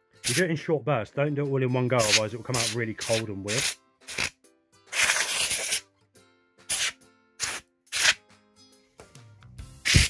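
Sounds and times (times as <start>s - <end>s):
background music: 0.0s - 10.0s
compressed-air can hissing: 2.0s - 4.3s, 4.9s - 5.8s, 6.7s - 8.2s.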